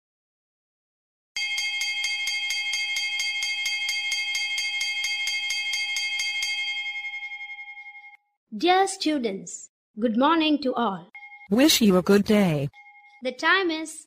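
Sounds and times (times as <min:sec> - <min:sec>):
electric bell ringing: 0:01.4 - 0:08.2.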